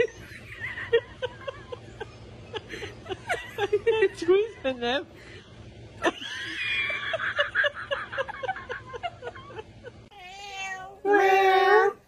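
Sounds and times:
giggling laughter: 0.0s - 4.5s, 6.0s - 10.1s
cat meowing: 10.1s - 12.0s.

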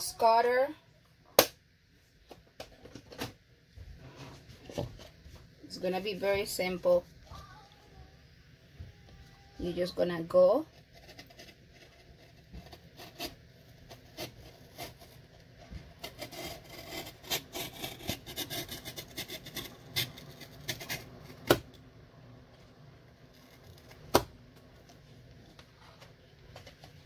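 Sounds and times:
knife scraping cardboard carton: 10.9s - 15.2s, 16.0s - 21.1s.

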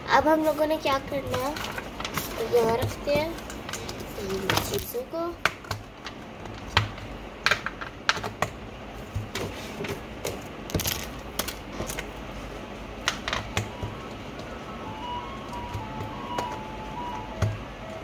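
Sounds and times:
plastic markers clattering: 1.2s - 5.0s.

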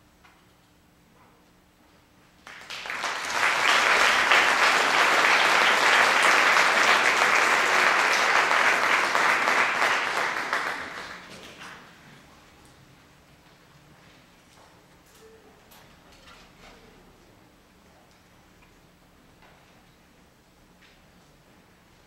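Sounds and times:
audience applause: 2.4s - 11.8s.

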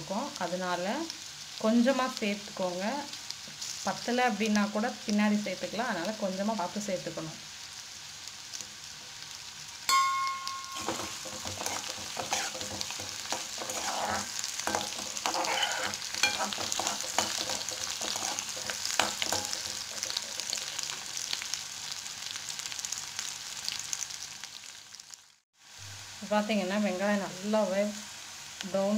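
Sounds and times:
onions sizzling in oil: 0.0s - 28.9s
spatula clanging on pan: 9.9s - 20.6s
spatula scraping pan: 10.7s - 21.0s.

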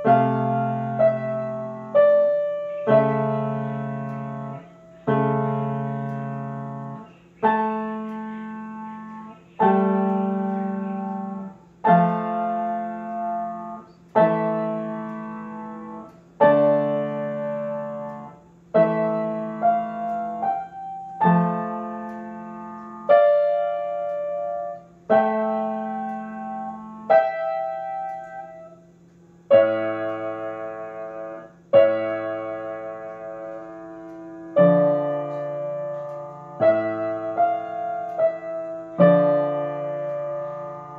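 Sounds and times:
grand piano chords: 0.0s - 40.9s.

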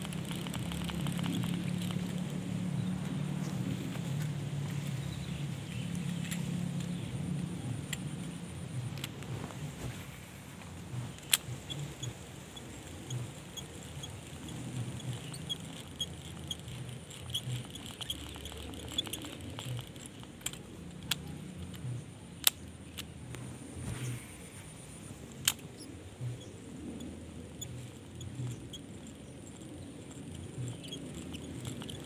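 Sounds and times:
fishing reel clicks and rattles: 0.0s - 4.2s, 10.8s - 23.2s, 24.0s - 32.0s
microphone handling rumble: 0.0s - 22.1s.

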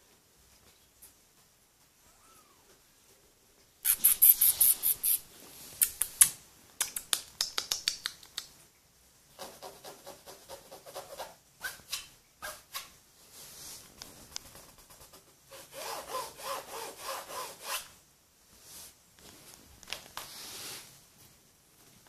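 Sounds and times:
kitten claws scratching fabric: 3.8s - 8.5s, 13.8s - 17.5s.

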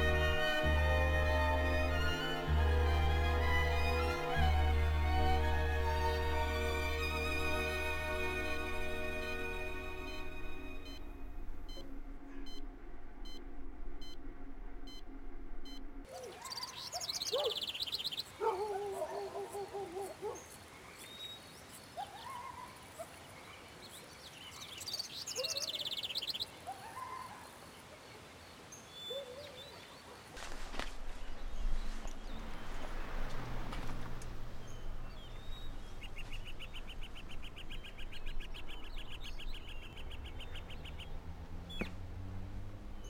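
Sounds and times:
birds chirping trills: 0.0s - 15.1s, 15.7s - 43.0s
soft sad string music: 0.0s - 16.1s, 30.4s - 43.0s.

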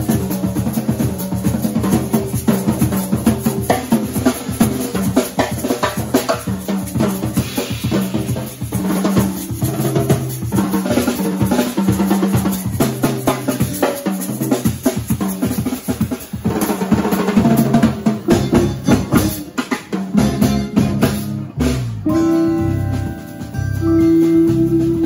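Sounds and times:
drum kit: 0.0s - 25.0s
electric guitar chords: 20.2s - 25.0s
fretless electric bass: 20.2s - 25.0s.

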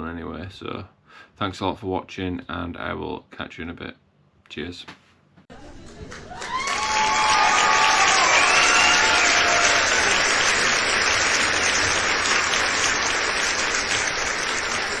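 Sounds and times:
crowd applauding: 5.8s - 15.0s
high calls from crowd: 6.2s - 15.0s.

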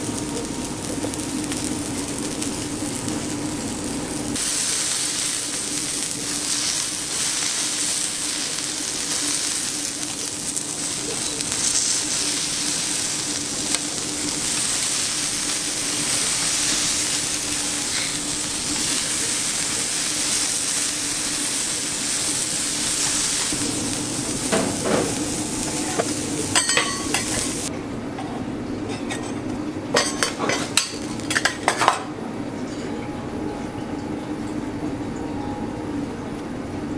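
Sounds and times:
meat sizzling on a griddle: 0.0s - 27.7s
metal utensils scraping griddle: 23.4s - 27.6s, 28.9s - 29.4s.

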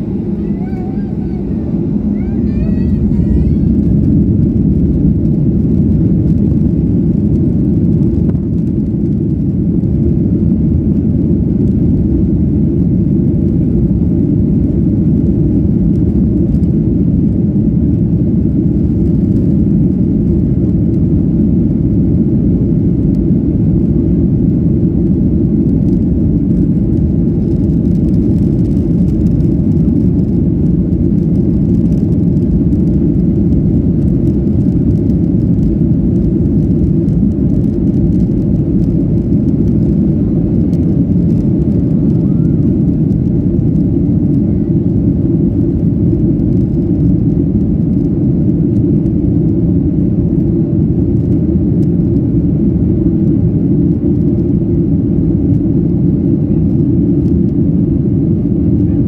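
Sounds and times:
jet engines roaring in cabin: 0.0s - 59.0s.

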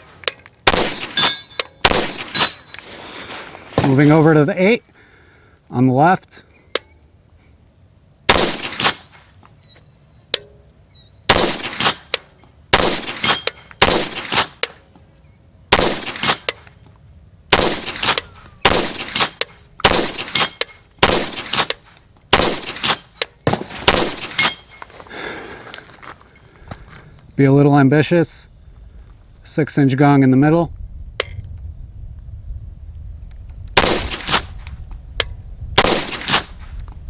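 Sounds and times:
pistol shots: 0.6s - 2.6s, 8.3s - 9.1s, 11.3s - 14.7s, 15.7s - 16.6s, 17.5s - 24.6s, 33.8s - 34.5s, 35.8s - 36.5s.

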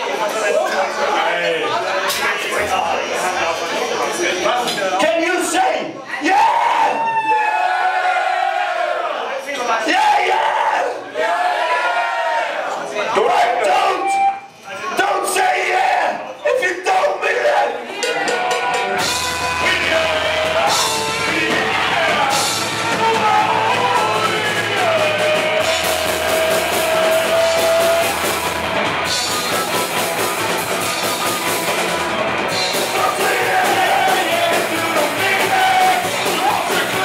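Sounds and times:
drums: 0.0s - 9.0s, 13.2s - 37.0s
person singing: 18.0s - 28.4s, 32.7s - 37.0s
electric guitars: 18.7s - 37.0s.

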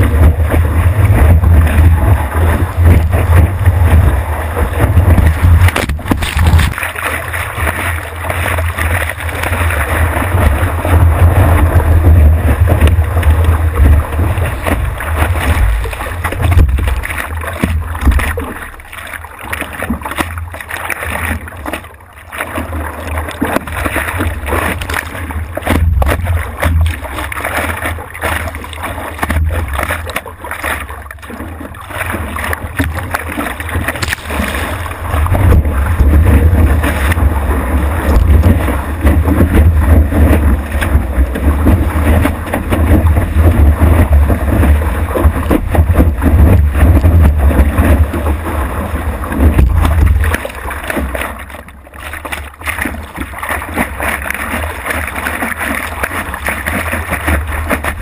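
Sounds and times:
wind noise: 0.0s - 6.8s, 9.5s - 18.4s, 34.0s - 50.4s
heavy low rumble: 0.0s - 19.2s, 24.1s - 27.4s, 32.6s - 51.1s
waves splashing around board: 0.0s - 58.0s.

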